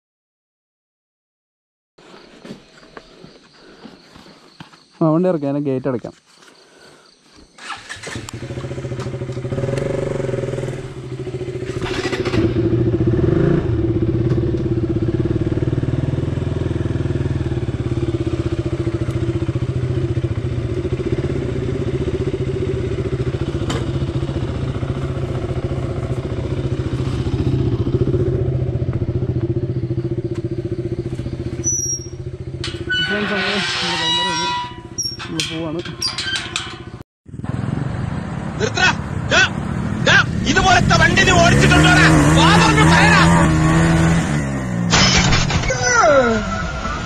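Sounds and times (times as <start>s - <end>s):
motorcycle engine running: 8.3s - 34.1s, 35.2s - 44.9s.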